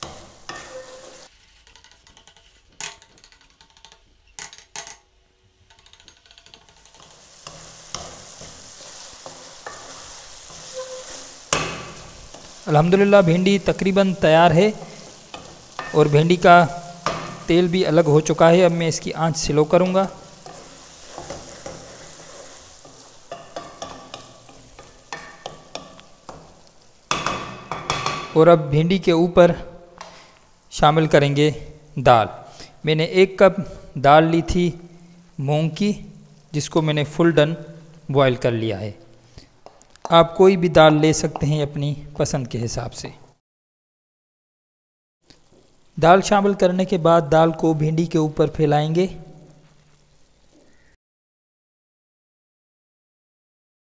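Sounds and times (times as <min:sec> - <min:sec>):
wooden spatula stirring and scraping: 0:00.0 - 0:04.2, 0:05.6 - 0:28.3
oil sizzling: 0:00.0 - 0:32.9, 0:34.5 - 0:41.6, 0:45.2 - 0:50.9.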